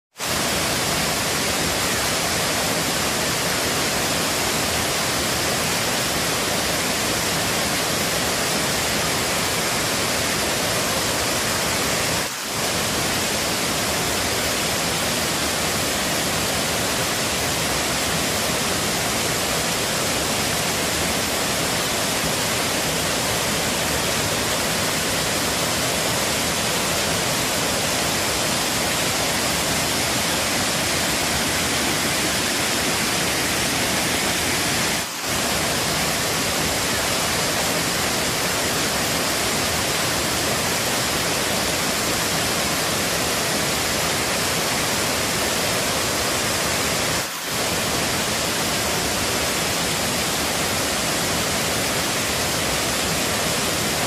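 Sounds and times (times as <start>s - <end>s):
waterfall roaring: 0.1s - 54.0s.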